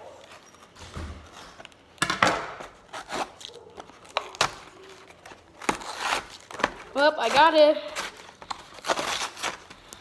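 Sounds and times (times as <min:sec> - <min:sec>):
knife scraping cardboard tape: 0:02.6 - 0:03.5, 0:05.6 - 0:10.0.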